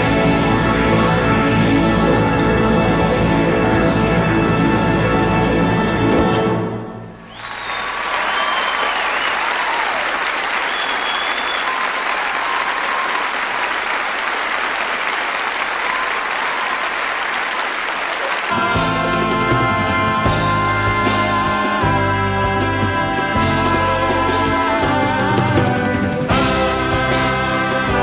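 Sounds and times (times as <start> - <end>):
whistles from audience: 7.2 - 14.0, 15.5 - 17.3
audience applauding: 7.2 - 18.9
band playing: 10.4 - 28.0.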